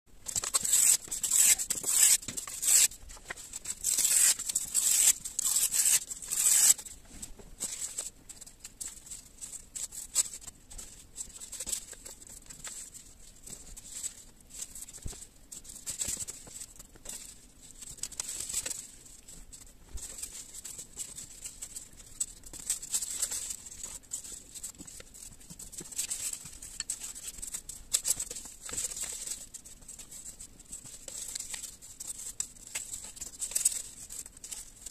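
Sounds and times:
paper strips rustling: 0:00.2 - 0:34.9
paper tearing: 0:00.3 - 0:03.0, 0:03.8 - 0:06.8.

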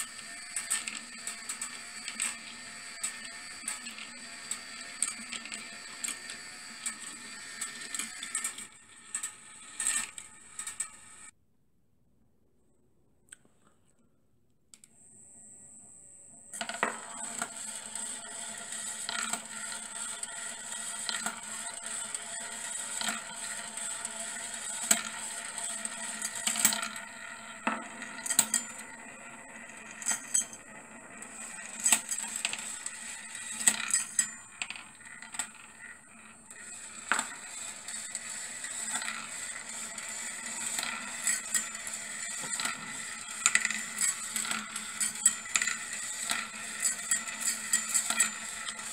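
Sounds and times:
small motor whine: 0:00.0 - 0:11.3
steel balls clicking on rails: 0:00.0 - 0:11.3, 0:16.5 - 0:48.9.

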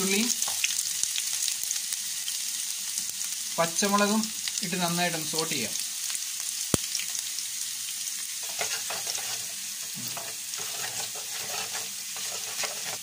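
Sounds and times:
vegetables sizzling in oil: 0:00.0 - 0:13.0
wooden spatula scraping pan: 0:08.4 - 0:13.0.

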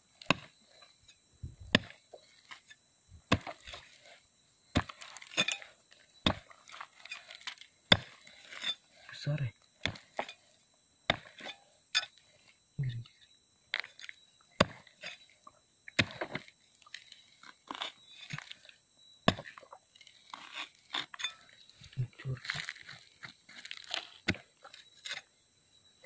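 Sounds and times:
metal rod scraping gravelly soil: 0:06.6 - 0:09.4, 0:19.4 - 0:25.3.

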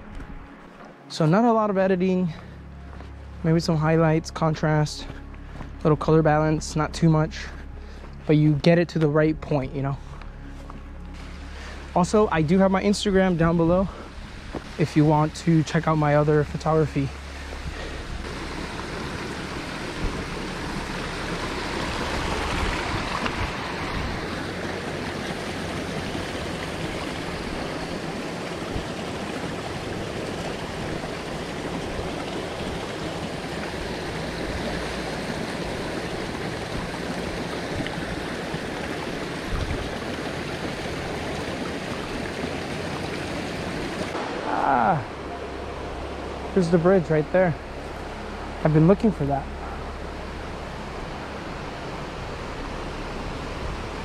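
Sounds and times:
creek rushing over rocks: 0:11.0 - 0:54.0.

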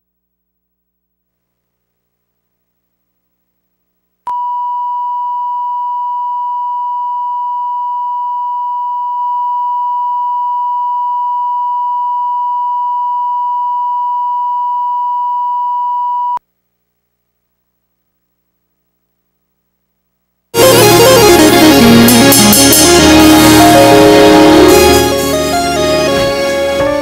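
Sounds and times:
steady test tone: 0:20.6 - 0:26.4.

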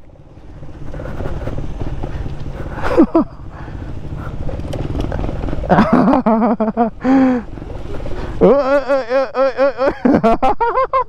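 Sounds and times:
motorcycle engine at low speed: 0:00.0 - 0:11.0
person speaking: 0:08.3 - 0:10.0
person shouting: 0:08.4 - 0:09.9.

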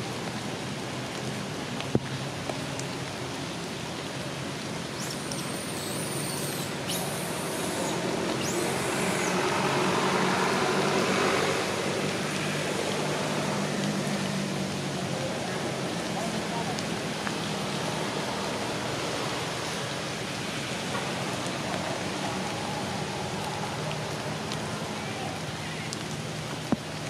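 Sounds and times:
rain hissing: 0:00.0 - 0:27.0
vehicle engine hum: 0:04.0 - 0:27.0.

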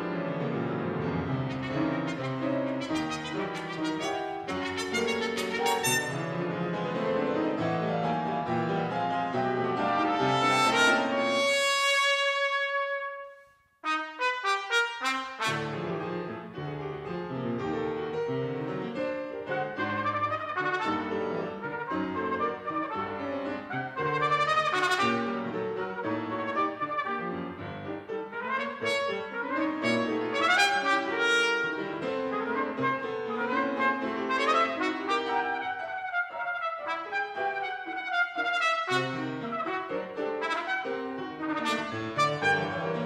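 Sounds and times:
piano accompaniment: 0:00.0 - 0:43.0
trumpet playing fast runs: 0:01.3 - 0:06.4, 0:19.6 - 0:25.4, 0:28.3 - 0:31.8, 0:32.4 - 0:43.0.

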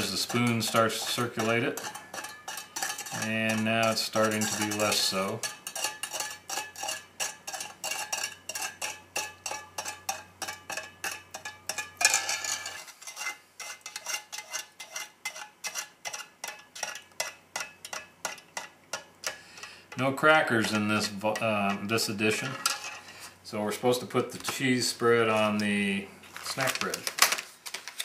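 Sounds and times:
spoon scraping cup: 0:00.0 - 0:17.3
spoon clinking in metal cup: 0:00.0 - 0:19.7.

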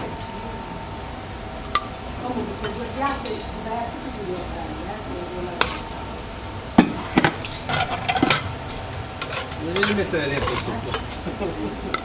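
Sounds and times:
metal spoon scraping a pan: 0:05.6 - 0:06.0, 0:06.8 - 0:11.3.

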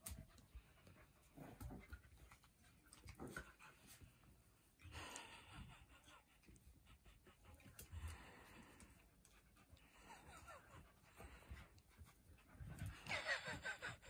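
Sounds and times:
dogs huffing breaths: 0:03.0 - 0:14.0.

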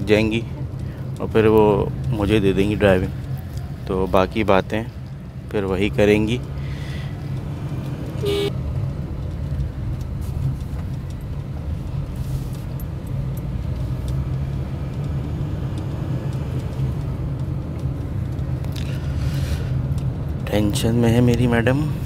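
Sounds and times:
car engine and road noise: 0:00.0 - 0:22.0
car horn toot: 0:08.2 - 0:08.5.

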